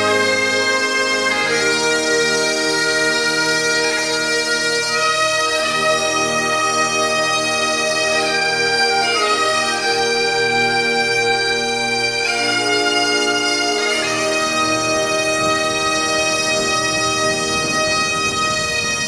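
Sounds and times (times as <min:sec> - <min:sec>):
bagpipe melody: 0:00.0 - 0:19.0.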